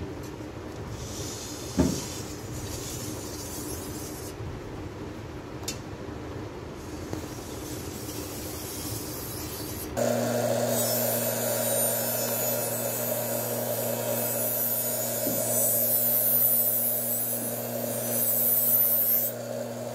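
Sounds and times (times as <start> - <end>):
bench buffer motor humming: 9.2 - 19.9.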